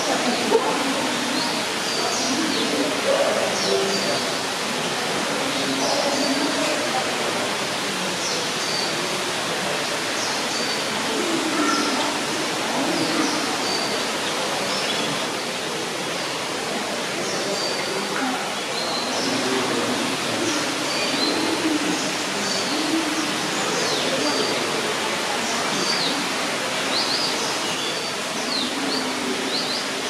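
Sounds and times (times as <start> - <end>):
small birds chirping: 11.6 - 15.5.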